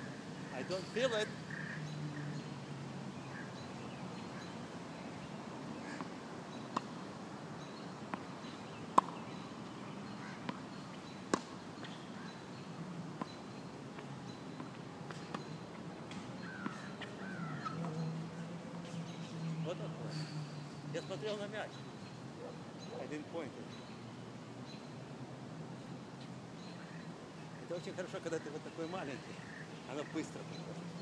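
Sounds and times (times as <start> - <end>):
tennis ball bouncing on court: 9.0 - 9.2, 11.3 - 12.0
tennis ball struck by rackets: 9.0 - 9.2, 11.3 - 11.6.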